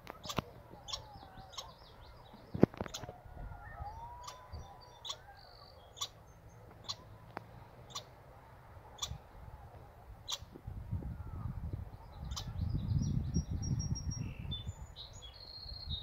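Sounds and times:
faint bird twittering: 0:00.1 - 0:08.1, 0:08.8 - 0:10.5, 0:11.1 - 0:16.0.

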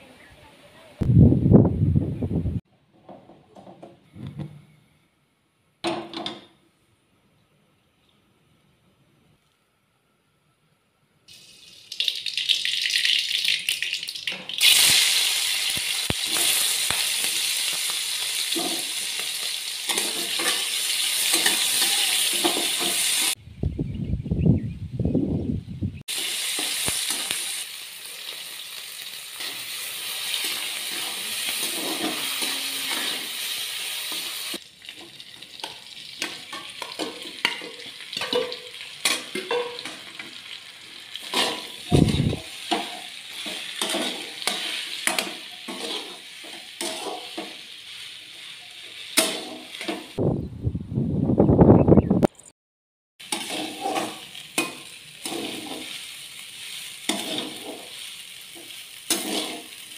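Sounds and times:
rice sizzling in a pan: 0:11.3 - 0:23.4, 0:26.0 - 0:50.2, 0:53.2 - 0:59.9
metal spatula scraping a pan: 0:18.4 - 0:23.4, 0:29.4 - 0:34.6, 0:35.6 - 0:40.3, 0:41.2 - 0:50.2, 0:53.2 - 0:59.9.

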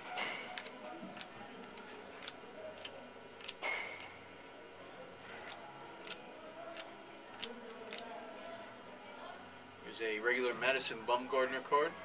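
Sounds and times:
cards clicking on a counter: 0:00.2 - 0:04.2, 0:05.4 - 0:08.1
cards rustling: 0:00.4 - 0:04.2, 0:05.2 - 0:08.2.

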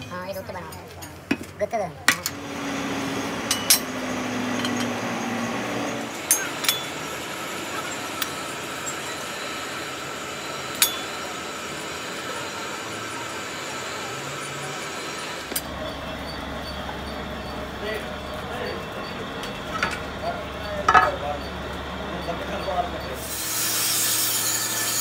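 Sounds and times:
metal brake parts clinking: 0:20.8 - 0:21.3.

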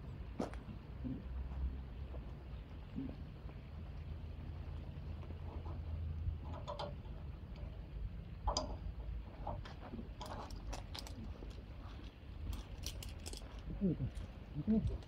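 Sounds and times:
gear clicking and tapping: 0:08.4 - 0:15.0.

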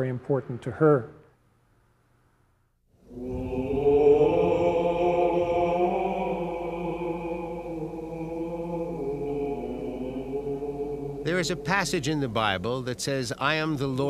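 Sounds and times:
choral chant with held notes: 0:03.0 - 0:14.0.

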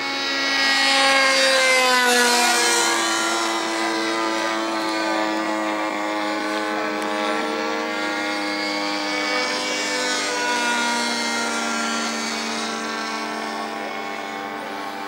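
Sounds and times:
model airplane motor droning: 0:00.0 - 0:15.0.

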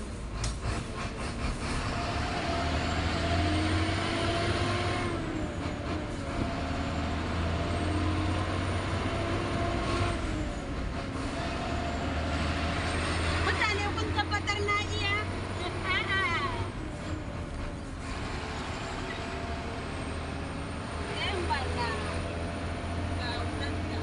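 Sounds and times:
truck diesel engine: 0:00.0 - 0:24.0.

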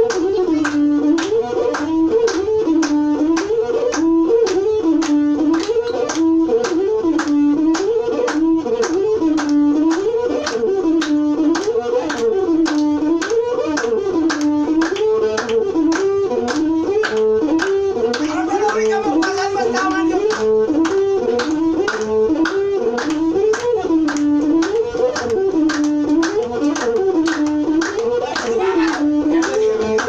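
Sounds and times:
bowed one-string fiddle melody: 0:00.0 - 0:30.0
steady percussion beat: 0:15.9 - 0:30.0.

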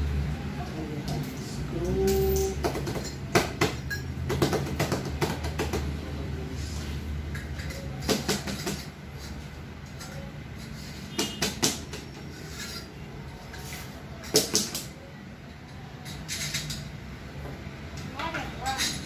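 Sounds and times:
metal hardware clicking and knocking: 0:07.3 - 0:09.0.

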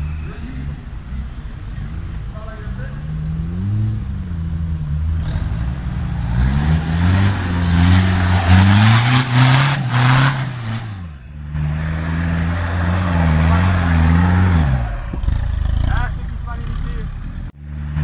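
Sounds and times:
engine revving under load: 0:00.0 - 0:18.0
spinning tyres churning mud: 0:00.0 - 0:18.0.

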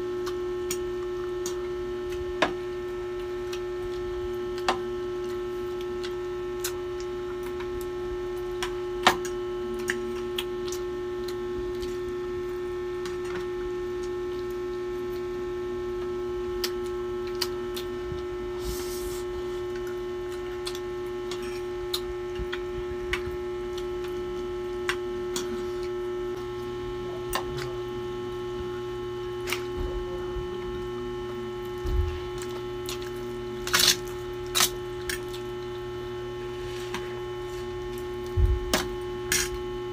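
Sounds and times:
electrical hum: 0:00.0 - 0:39.9.

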